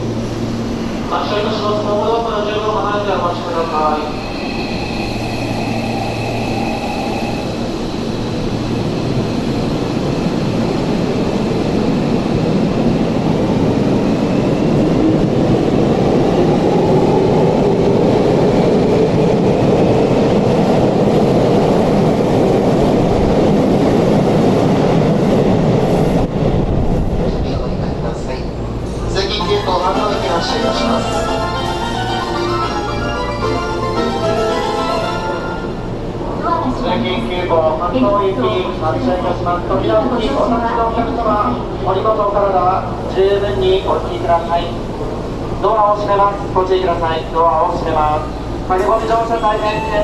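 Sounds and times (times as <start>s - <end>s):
train wheels rumbling on rail: 0.0s - 29.7s.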